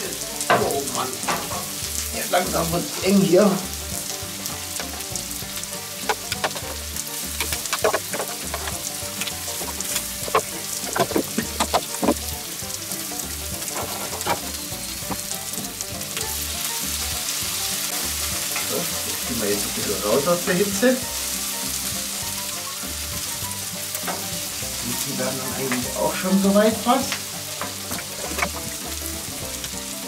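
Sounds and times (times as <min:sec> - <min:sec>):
food sizzling on charcoal grill: 0:00.0 - 0:30.0
sharp pops and crackles: 0:04.0 - 0:16.3, 0:27.1 - 0:29.0.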